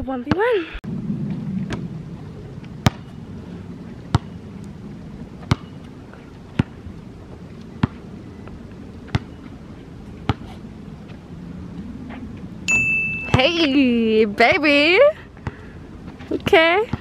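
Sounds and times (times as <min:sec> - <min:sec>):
low background noise: 0:00.0 - 0:17.0
basketball bouncing on hard court: 0:04.1 - 0:04.4, 0:05.4 - 0:05.8, 0:09.1 - 0:09.4.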